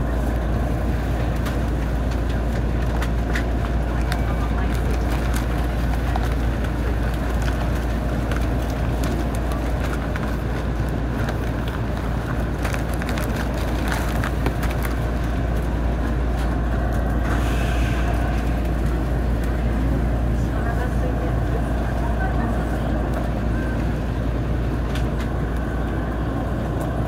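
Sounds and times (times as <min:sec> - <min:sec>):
electric train equipment humming: 0:00.0 - 0:27.0.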